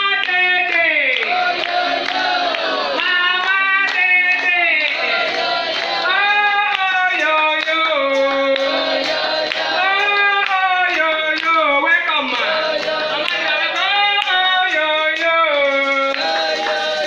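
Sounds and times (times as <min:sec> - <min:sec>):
women singing: 0:01.2 - 0:17.0
steady beat: 0:03.8 - 0:17.0.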